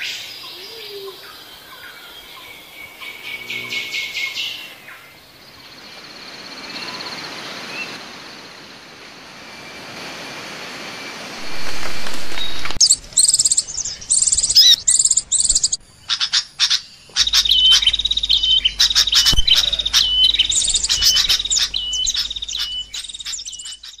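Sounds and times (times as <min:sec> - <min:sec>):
songbird singing: 0:00.0 - 0:10.0, 0:10.8 - 0:24.0
loud rushing noise: 0:09.6 - 0:12.9.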